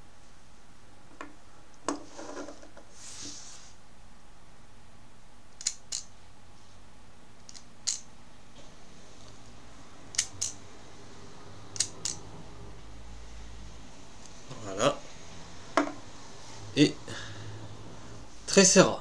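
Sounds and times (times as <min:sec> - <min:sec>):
plastic toy clicking: 0:05.6 - 0:06.1, 0:07.4 - 0:08.0, 0:10.1 - 0:10.6, 0:11.8 - 0:12.2.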